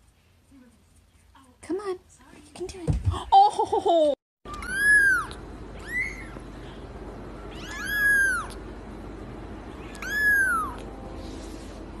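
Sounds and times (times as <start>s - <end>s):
kitten mewing: 7.5s - 8.6s, 9.8s - 10.8s.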